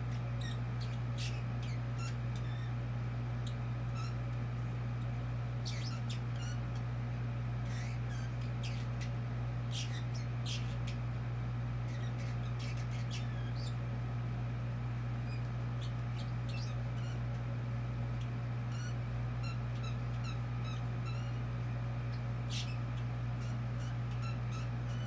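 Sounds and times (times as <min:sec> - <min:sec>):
steady low hum: 0:00.0 - 0:25.0
budgie chirping: 0:00.1 - 0:02.8, 0:03.4 - 0:04.3, 0:05.5 - 0:06.8, 0:07.6 - 0:11.1, 0:11.8 - 0:13.9, 0:15.2 - 0:17.5, 0:18.1 - 0:25.0.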